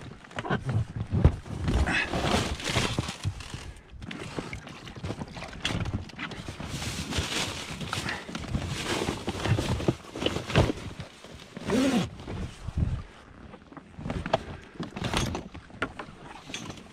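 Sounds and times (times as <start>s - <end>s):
gear knocking and rustling: 0.0s - 16.9s.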